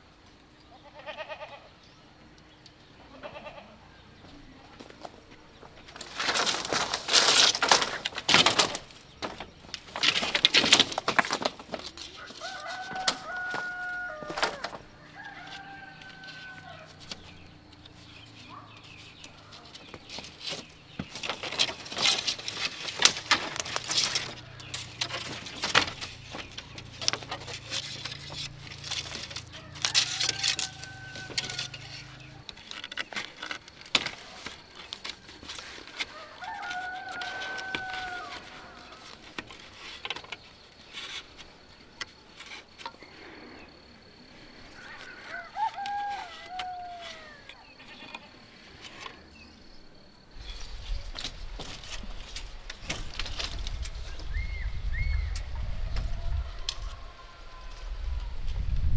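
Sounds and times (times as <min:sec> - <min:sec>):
chickens: 0:02.9 - 0:33.1, 0:34.0 - 0:49.3
rooster crowing: 0:12.1 - 0:17.4, 0:29.4 - 0:32.4, 0:36.1 - 0:39.1, 0:44.8 - 0:47.6, 0:55.0 - 0:58.4.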